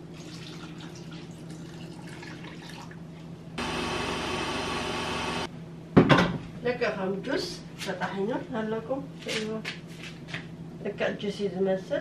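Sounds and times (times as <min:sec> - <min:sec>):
blender motor running: 0:03.6 - 0:05.5.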